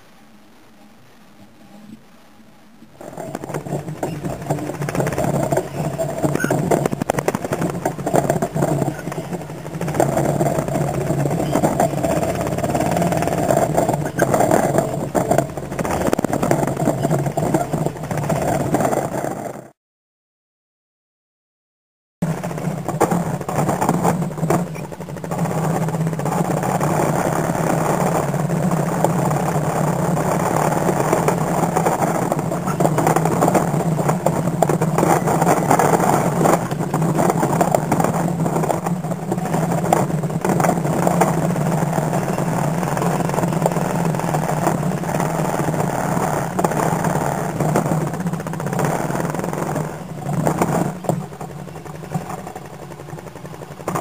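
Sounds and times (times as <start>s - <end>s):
atv engine running: 2.6s - 19.8s, 22.2s - 54.0s
trailer frame knocking and rattling: 3.0s - 19.6s.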